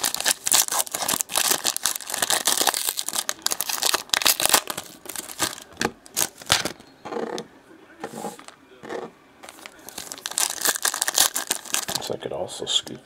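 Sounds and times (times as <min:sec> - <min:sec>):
foil wrapper crinkling: 0:00.0 - 0:06.8, 0:09.5 - 0:12.2.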